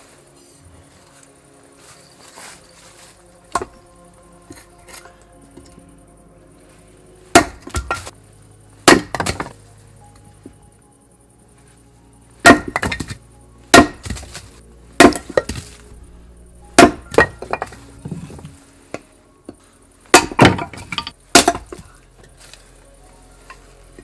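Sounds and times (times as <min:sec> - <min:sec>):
firewood chopping cracks: 0:07.3 - 0:08.1, 0:08.9 - 0:09.6, 0:12.4 - 0:15.8, 0:16.8 - 0:17.8, 0:20.1 - 0:21.9.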